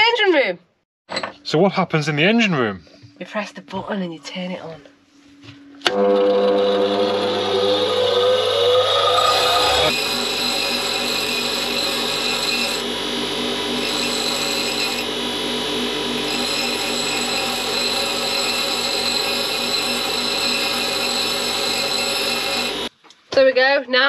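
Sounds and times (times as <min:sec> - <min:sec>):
bench grinder grinding metal: 0:05.9 - 0:22.9.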